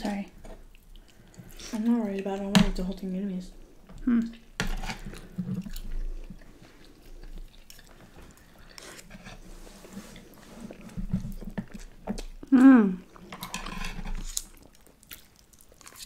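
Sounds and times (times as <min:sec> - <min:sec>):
person humming: 0:04.0 - 0:04.4, 0:12.4 - 0:13.1
chewing and slurping noodles: 0:04.3 - 0:12.4, 0:13.0 - 0:16.0.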